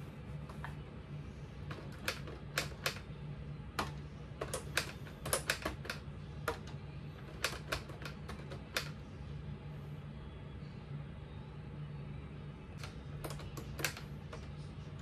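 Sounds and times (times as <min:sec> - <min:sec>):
faint low hum: 0:00.0 - 0:15.0
typewriter keys clicking: 0:04.4 - 0:06.6, 0:07.3 - 0:08.9.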